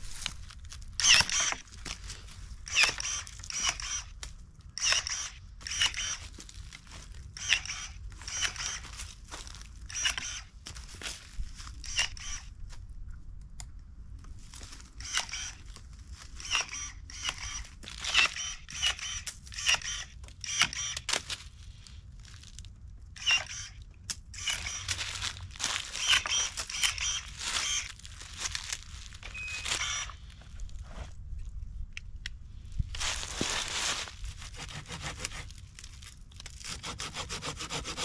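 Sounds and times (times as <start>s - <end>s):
electric pruning shears snipping: 1.0s - 1.7s, 2.7s - 4.1s, 4.8s - 6.3s, 7.4s - 8.9s, 9.9s - 10.5s, 16.4s - 21.2s, 23.2s - 23.8s, 24.4s - 25.3s, 25.9s - 28.0s, 29.5s - 30.2s.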